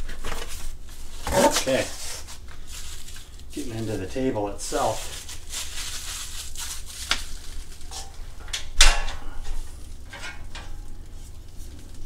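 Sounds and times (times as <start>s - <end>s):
loud metallic clank: 8.7s - 9.5s.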